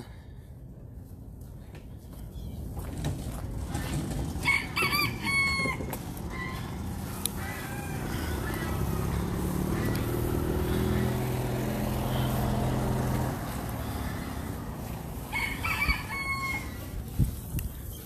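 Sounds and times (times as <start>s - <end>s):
rooster crowing: 4.4s - 11.7s, 14.0s - 17.0s.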